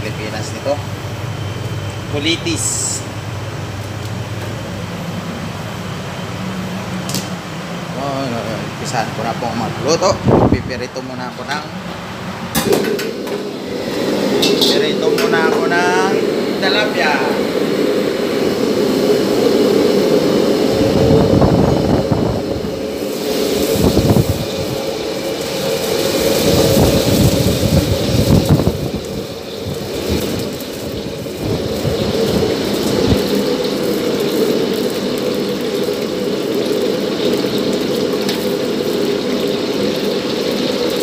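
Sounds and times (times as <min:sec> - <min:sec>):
gas range and exhaust hood roar: 0:00.0 - 0:41.0
fish sizzling in a pan: 0:22.9 - 0:41.0.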